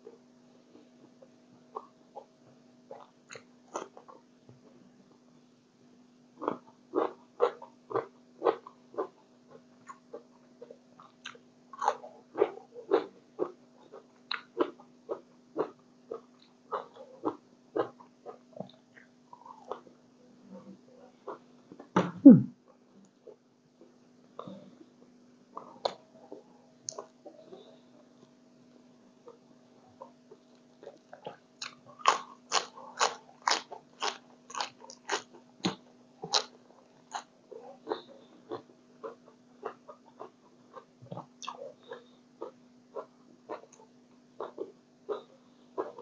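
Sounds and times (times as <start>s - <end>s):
lettuce being chewed: 2.9s - 4.2s, 6.4s - 19.9s, 30.0s - 46.0s.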